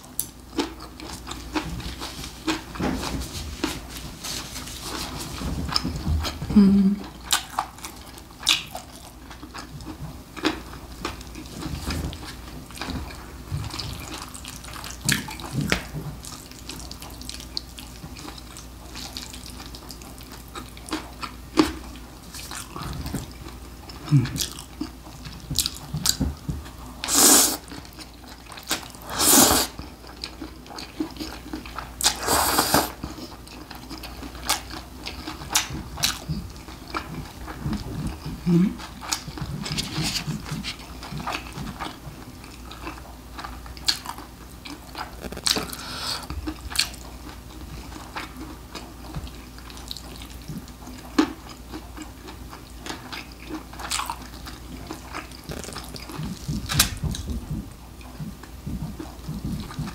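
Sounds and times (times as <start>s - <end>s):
wet chewing: 4.8s - 59.9s
slurping noodles: 27.1s - 27.7s, 29.0s - 29.8s, 32.0s - 33.0s.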